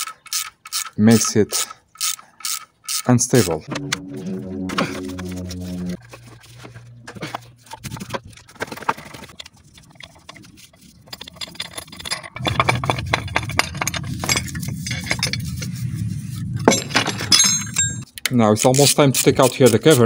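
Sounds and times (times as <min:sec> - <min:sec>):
metal tools clinking on engine parts: 0:11.1 - 0:15.4, 0:16.7 - 0:18.0.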